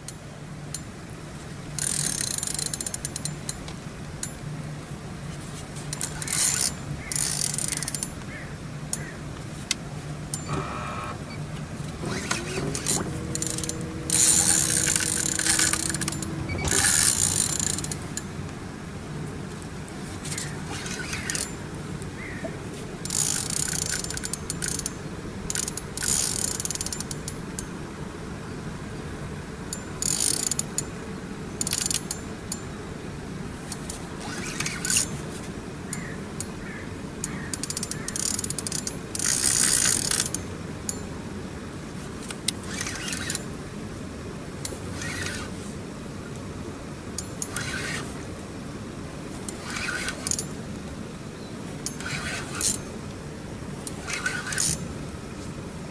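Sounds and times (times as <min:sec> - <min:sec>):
fishing reel clicking and whirring: 0:01.8 - 0:03.6, 0:05.9 - 0:08.2, 0:12.0 - 0:18.3, 0:20.3 - 0:21.6, 0:23.0 - 0:27.7, 0:30.0 - 0:30.8, 0:31.6 - 0:32.2, 0:34.2 - 0:35.1, 0:37.6 - 0:41.0, 0:42.5 - 0:43.5, 0:44.6 - 0:45.6, 0:47.4 - 0:48.2, 0:49.4 - 0:50.5, 0:51.8 - 0:52.8, 0:53.8 - 0:54.8.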